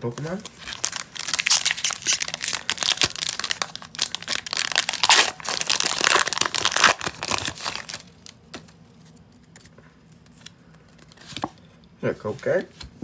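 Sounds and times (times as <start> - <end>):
foil wrapper crinkling and tearing: 0.1 - 8.4.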